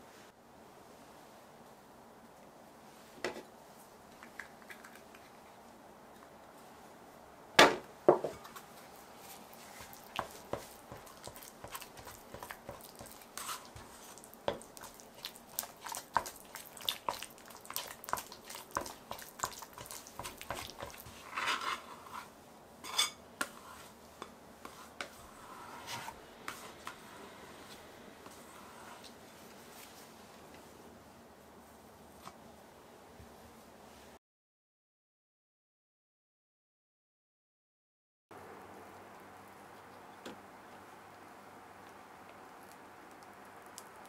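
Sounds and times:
scraper scraping dough in glass bowl: 10.2s - 14.2s, 19.8s - 22.3s.

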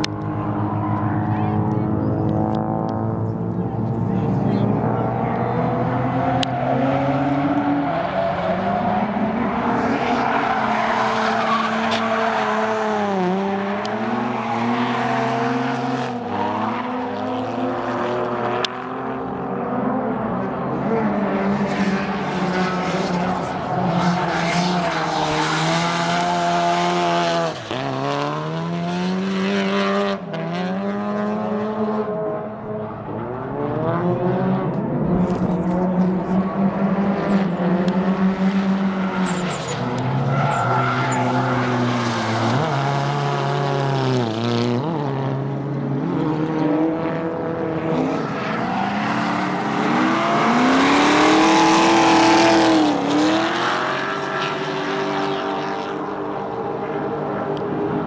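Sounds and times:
car engine revving: 0.0s - 58.0s
tires squealing: 5.0s - 17.4s, 21.5s - 28.4s, 38.4s - 44.3s, 48.0s - 55.6s.

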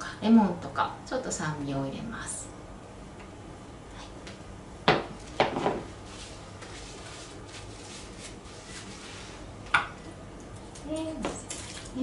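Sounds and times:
knocks on a countertop: 4.8s - 5.9s.

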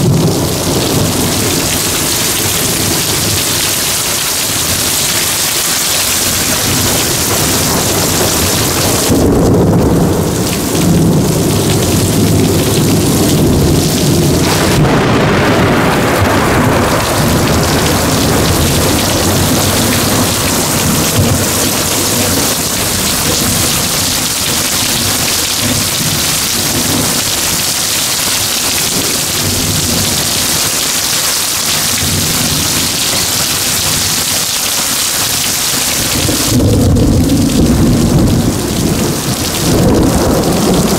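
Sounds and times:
heavy rain pouring: 0.0s - 40.9s
low roll of thunder: 6.2s - 27.7s, 36.0s - 40.9s.

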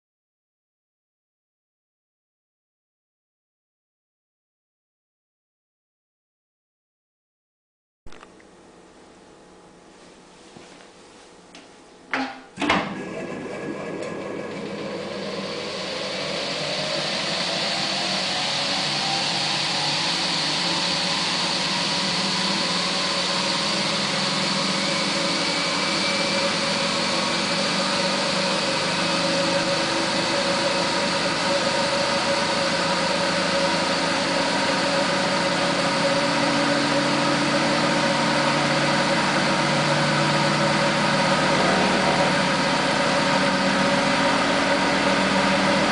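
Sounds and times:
spin dryer motor whining: 12.2s - 45.9s.

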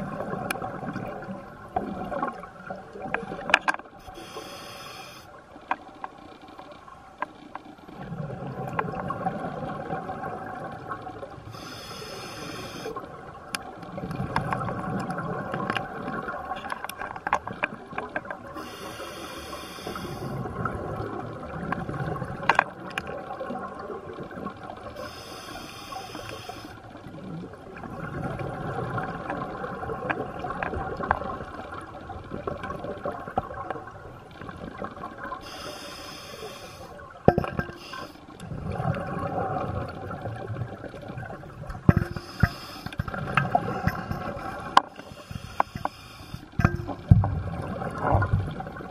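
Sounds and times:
scuba regulator breathing hiss: 4.0s - 5.4s, 11.5s - 13.0s, 18.6s - 20.4s, 25.0s - 26.8s, 35.4s - 37.0s, 37.8s - 38.2s, 42.1s - 43.0s, 45.0s - 46.6s
small clicks: 5.6s - 7.8s, 16.5s - 18.4s, 22.4s - 23.2s
exhaled bubbles rushing: 38.4s - 42.2s, 46.6s - 48.9s.

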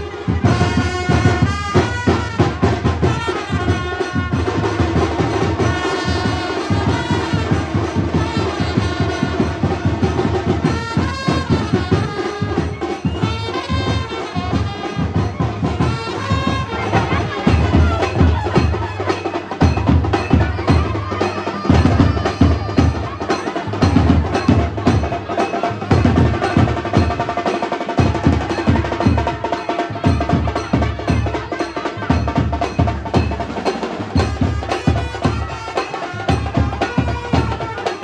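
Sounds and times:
trumpets playing: 0.0s - 19.6s, 34.3s - 38.0s
steady drum beat: 0.0s - 38.0s.

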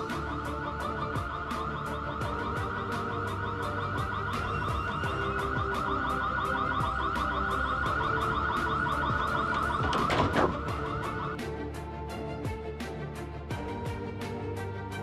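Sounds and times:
warbling electronic alarm tone: 0.0s - 11.4s
background music with steady beat: 0.0s - 15.0s.

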